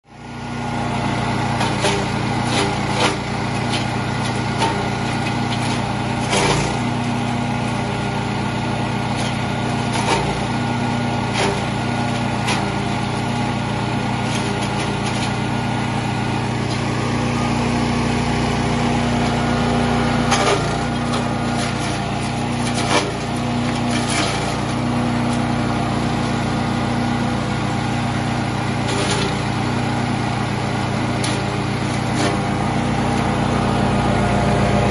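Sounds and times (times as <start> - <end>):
chipper shredder running: 0.0 - 34.9
sharp cracks and knocks: 9.1 - 10.4, 20.3 - 25.4.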